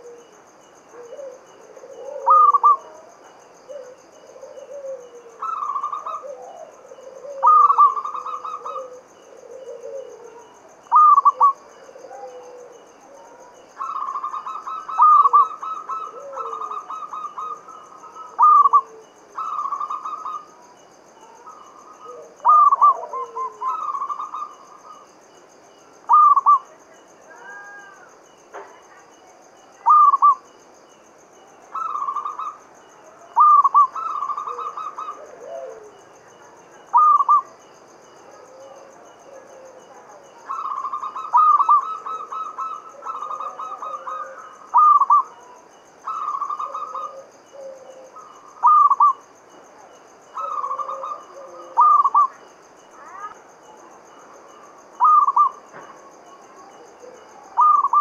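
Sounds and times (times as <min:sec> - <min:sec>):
dove cooing: 0:00.0 - 0:25.1, 0:26.1 - 0:28.1, 0:29.8 - 0:30.4, 0:31.7 - 0:32.6, 0:33.2 - 0:49.3, 0:50.3 - 0:58.0.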